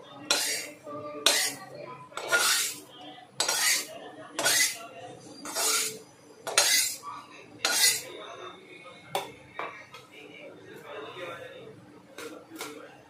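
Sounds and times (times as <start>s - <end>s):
metal spatula scraping metal pan: 0.2s - 4.8s, 5.4s - 7.0s, 7.6s - 8.1s.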